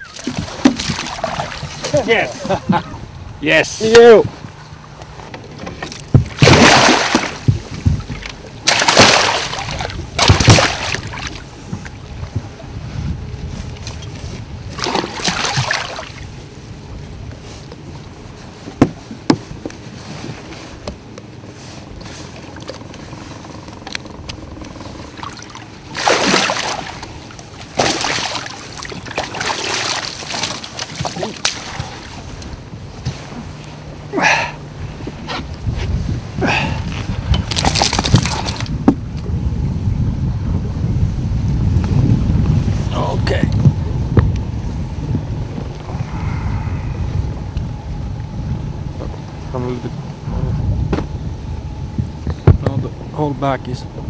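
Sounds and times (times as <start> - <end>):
fish splashing in a net: 6.4 - 7.4, 8.7 - 11.4, 14.8 - 16.1, 25.4 - 27.0, 27.7 - 31.9.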